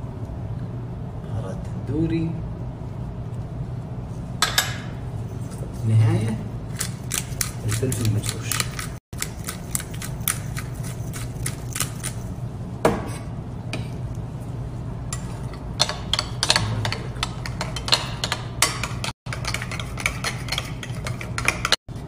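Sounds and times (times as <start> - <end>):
utensil clinking against glass bowl: 15.1 - 21.8.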